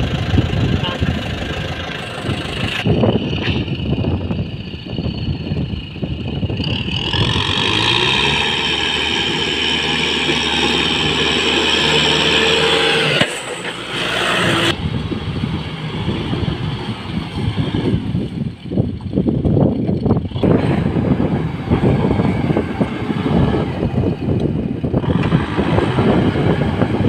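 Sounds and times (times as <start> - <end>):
tractor diesel engine revving: 0.0 - 27.0.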